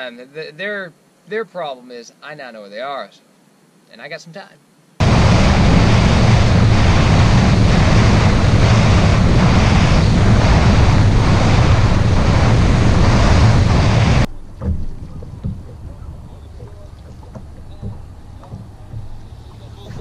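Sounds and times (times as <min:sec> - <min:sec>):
boat motor: 0:05.0 - 0:20.0
hull slapping water: 0:05.0 - 0:20.0
wind buffeting microphone: 0:05.0 - 0:20.0.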